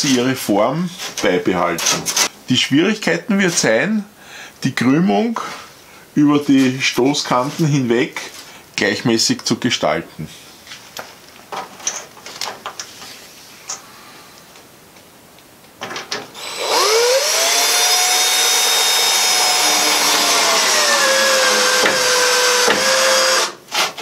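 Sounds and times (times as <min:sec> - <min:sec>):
cordless drill motor whining: 0:16.4 - 0:23.6.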